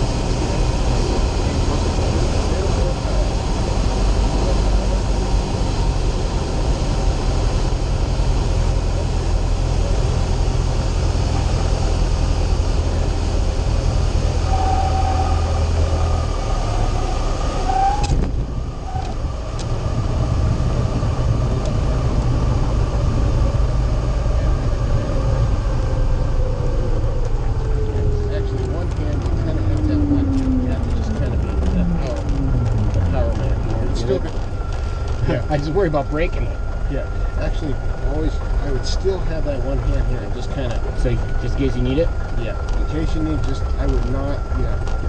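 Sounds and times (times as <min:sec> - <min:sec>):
propeller engine running: 0:00.0 - 0:14.6, 0:15.3 - 0:45.0
slowly falling tone: 0:14.3 - 0:45.0.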